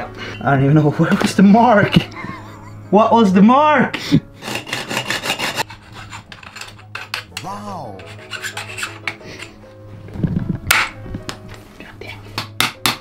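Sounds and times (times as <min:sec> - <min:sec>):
file rasping on metal tube: 0:04.4 - 0:09.6.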